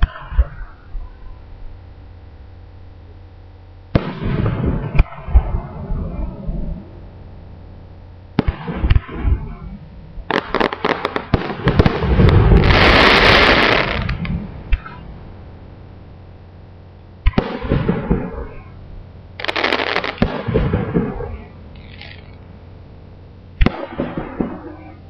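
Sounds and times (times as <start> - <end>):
fireworks bangs: 3.9 - 6.4, 8.4 - 15.0, 17.2 - 18.7, 19.4 - 22.2, 23.6 - 25.0
fireworks crackling: 8.4 - 15.0, 19.4 - 22.4.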